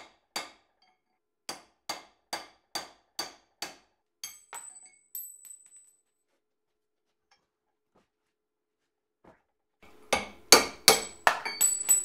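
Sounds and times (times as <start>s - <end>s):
hammer striking metal: 0.0s - 0.9s, 1.5s - 4.9s, 9.8s - 12.0s
light metallic clinks: 10.9s - 12.0s.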